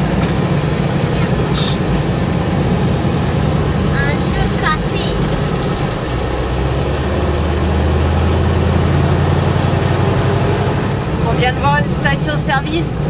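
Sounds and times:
diesel truck engine drone: 0.0 - 13.0
road noise: 0.0 - 13.0.

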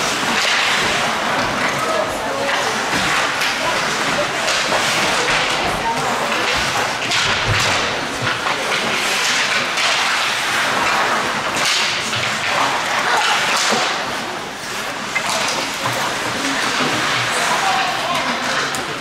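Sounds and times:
sharp crack: 0.0 - 1.4
skate blades scraping ice: 0.0 - 19.0
sticks and puck clattering: 0.0 - 19.0.

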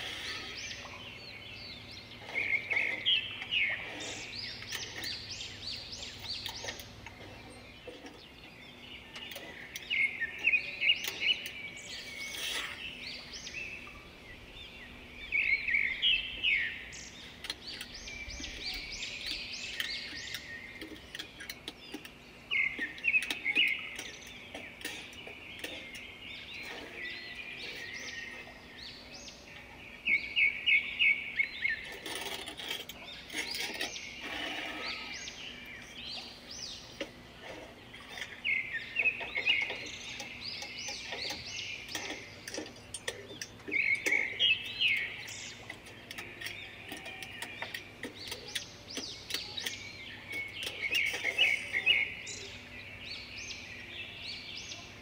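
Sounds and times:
songbird chirping: 0.0 - 55.0.

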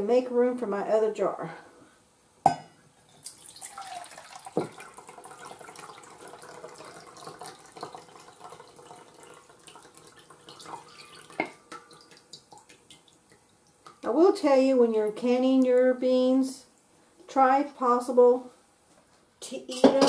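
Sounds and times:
liquid trickling into a metal bowl: 3.1 - 13.9.

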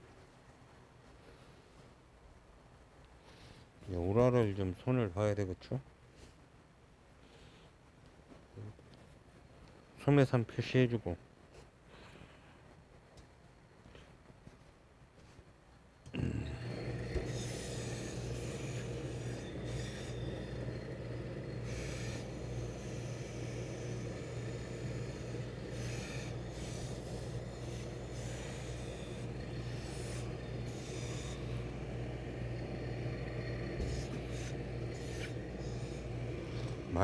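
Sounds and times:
steady low hum: 0.0 - 37.0
steam hissing: 16.2 - 37.0
iron sliding over cloth: 16.4 - 37.0.

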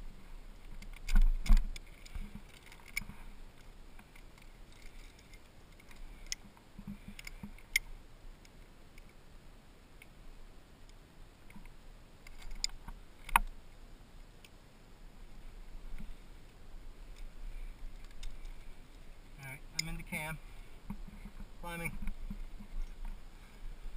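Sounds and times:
climbing gear clinking: 0.7 - 7.9.

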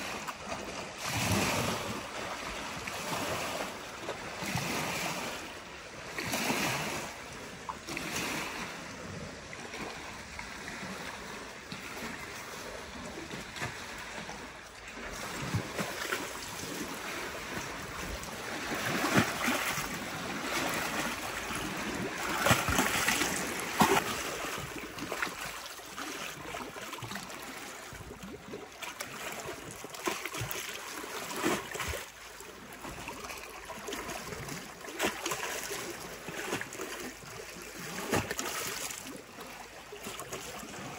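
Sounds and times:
waves splashing against stone steps: 0.0 - 40.9.

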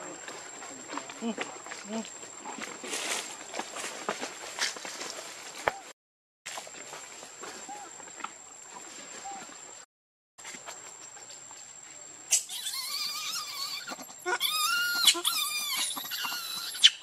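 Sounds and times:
baby monkey screaming: 12.3 - 17.0.

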